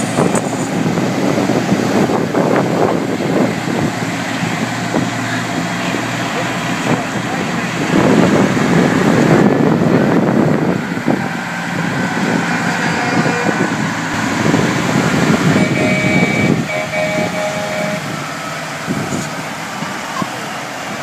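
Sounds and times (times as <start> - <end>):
diesel truck engines rumbling: 0.0 - 21.0.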